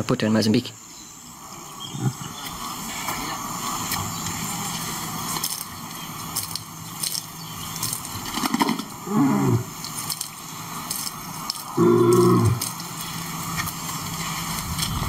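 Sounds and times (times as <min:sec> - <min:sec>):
crackling background: 0:00.0 - 0:15.0
lion groaning: 0:01.6 - 0:03.7, 0:08.3 - 0:10.3, 0:11.6 - 0:13.0
scattered clicks: 0:02.4 - 0:09.0, 0:09.7 - 0:15.0.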